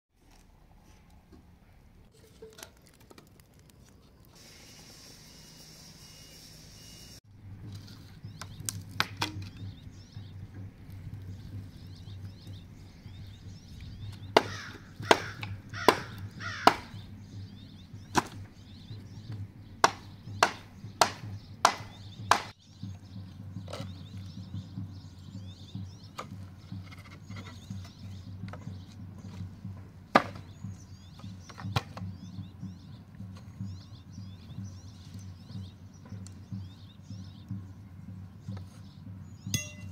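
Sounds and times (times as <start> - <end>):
hatchet chopping wooden boards: 8.3 - 9.6, 14.1 - 17.0, 18.1 - 18.5, 19.8 - 22.6, 30.1 - 32.1.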